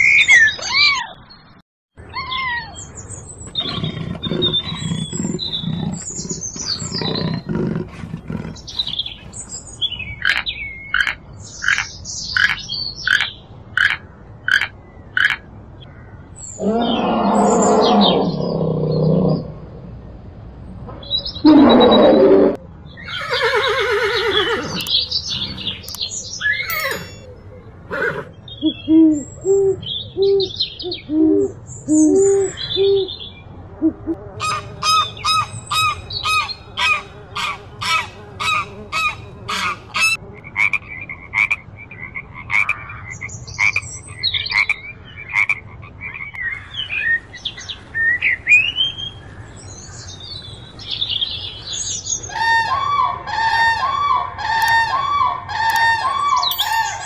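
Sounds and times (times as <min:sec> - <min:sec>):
birds chirping: 0:00.0 - 0:19.6, 0:22.9 - 0:33.5, 0:34.4 - 0:40.2, 0:54.5 - 0:57.0.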